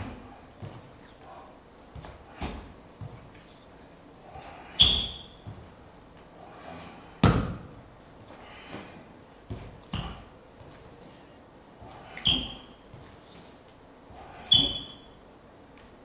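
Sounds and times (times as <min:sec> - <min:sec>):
shoe squeak: 0:00.0 - 0:00.3, 0:04.6 - 0:05.5, 0:11.0 - 0:11.4, 0:12.0 - 0:13.5, 0:14.3 - 0:15.2
sneakers stamping on hard floor: 0:01.9 - 0:03.4, 0:07.2 - 0:07.7, 0:09.4 - 0:10.9.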